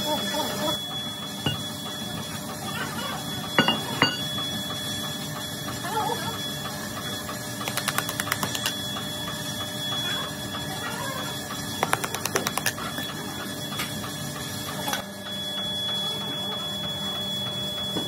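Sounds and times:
workshop noise: 0:00.4 - 0:05.8, 0:11.4 - 0:16.2.

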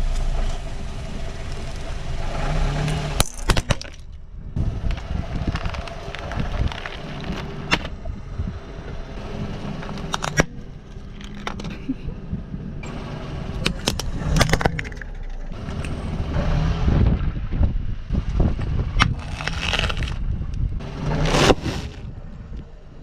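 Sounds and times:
low car rumble: 0:00.0 - 0:23.0
plastic cracking under car tyre: 0:04.8 - 0:08.0, 0:09.9 - 0:11.8, 0:13.6 - 0:15.4, 0:19.0 - 0:20.6.

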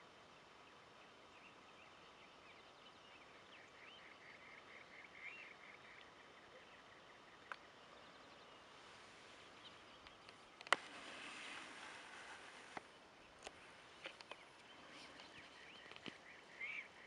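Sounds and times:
quiet background hush: 0:00.0 - 0:17.0
birds chirping and whistling: 0:06.6 - 0:17.0.

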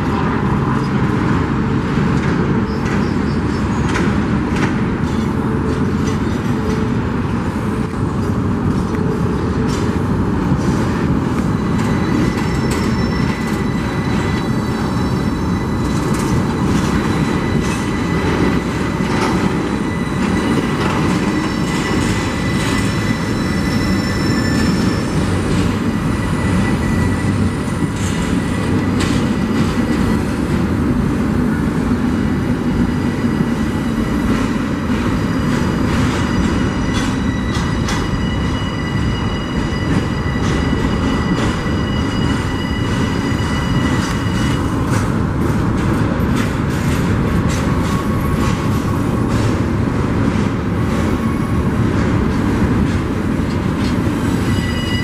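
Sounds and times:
train wheels rumbling on rail: 0:00.0 - 0:55.0
clanks and clicks from cars: 0:02.0 - 0:13.6, 0:27.8 - 0:30.2, 0:43.8 - 0:54.4
high-pitched wheel squeal: 0:11.4 - 0:30.3, 0:32.4 - 0:44.8, 0:54.1 - 0:55.0.

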